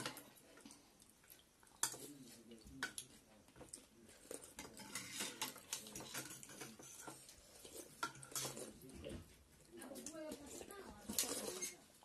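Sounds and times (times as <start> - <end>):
cutlery clinking on ceramic bowls: 4.3 - 8.7.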